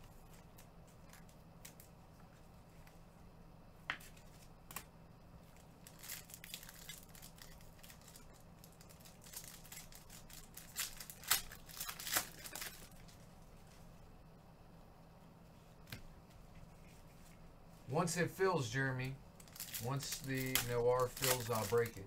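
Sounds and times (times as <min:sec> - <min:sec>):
faint low hum: 0:00.0 - 0:22.0
plastic packaging crinkling: 0:05.5 - 0:13.1, 0:19.4 - 0:22.0.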